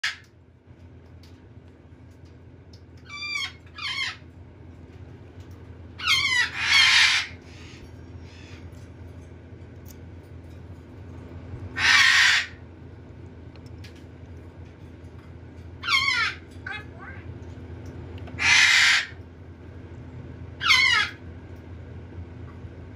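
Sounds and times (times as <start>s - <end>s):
parrot harsh raspy squawk: 3.1s - 4.2s, 6.0s - 7.7s, 11.8s - 12.6s, 15.8s - 17.1s, 18.4s - 19.2s, 20.6s - 21.2s.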